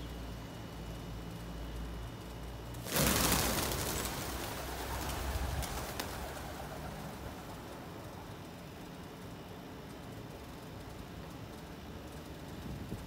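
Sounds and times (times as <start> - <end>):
pigeon wings whirring: 2.7 - 8.6
sharp wing claps: 2.8 - 7.6.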